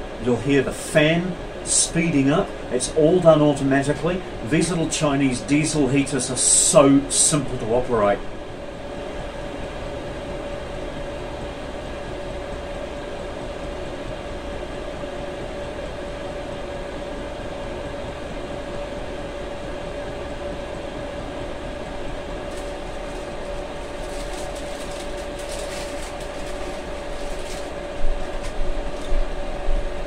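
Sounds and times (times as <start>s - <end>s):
heater fan whining: 0.0s - 30.0s
plastic wrapper crinkling: 22.4s - 29.2s.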